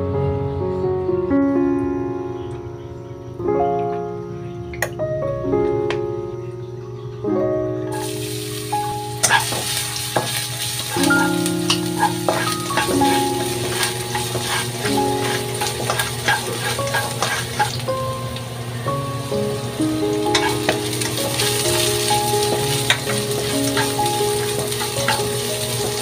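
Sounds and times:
background music with held notes: 0:00.0 - 0:26.0
garlic sizzling in oil: 0:07.9 - 0:26.0
spatula scraping a wok: 0:09.2 - 0:17.8, 0:20.3 - 0:20.8, 0:22.5 - 0:26.0.

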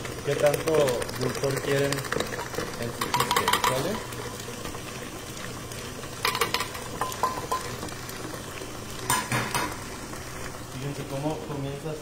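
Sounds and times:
stand mixer running: 0:00.0 - 0:09.6.

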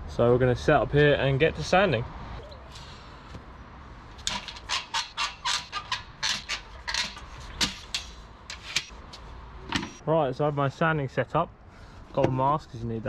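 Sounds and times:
metal workbench frame clacking: 0:04.2 - 0:08.9.

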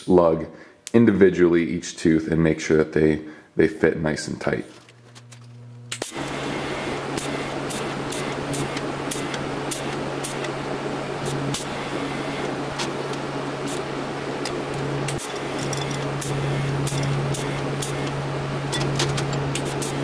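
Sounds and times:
welding arc buzzing and crackling: 0:04.8 - 0:20.0.

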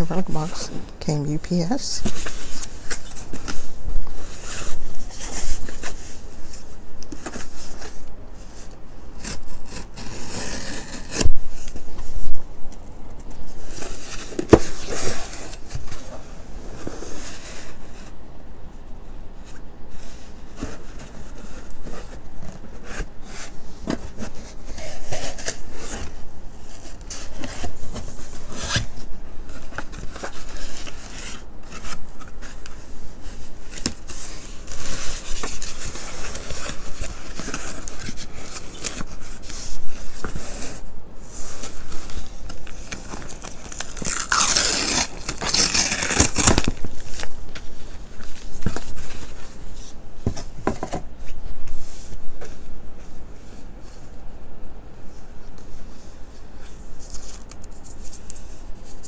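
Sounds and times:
plastic bag crinkling: 0:42.6 - 0:47.4.

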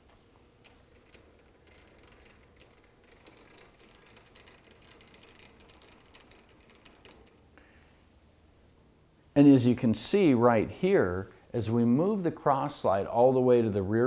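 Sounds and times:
lathe handwheel clicking and rattling: 0:00.0 - 0:07.6.

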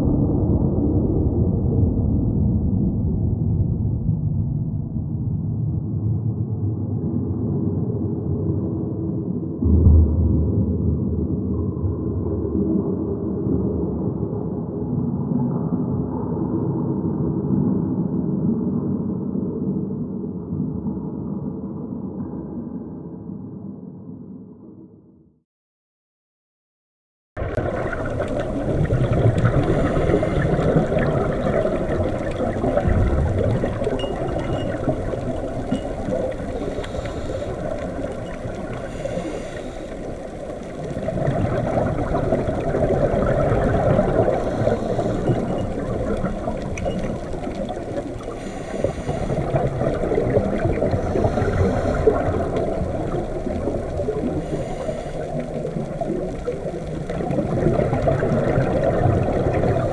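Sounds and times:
underwater rush and gurgle: 0:00.0 - 0:05.2, 0:27.4 - 0:59.9.

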